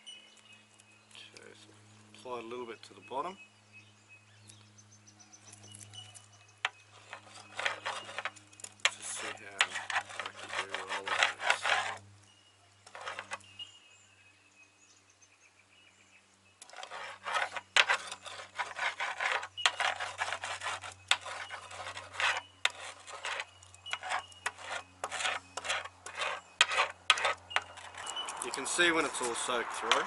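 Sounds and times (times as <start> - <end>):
laminating roller rasping on fiberglass: 6.6 - 12.1, 12.8 - 13.4, 16.6 - 30.0.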